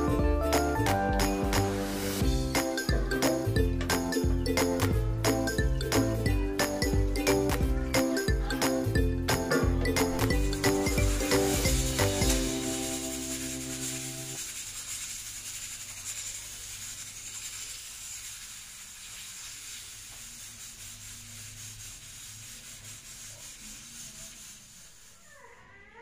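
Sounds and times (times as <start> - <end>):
music: 0.0 - 14.4.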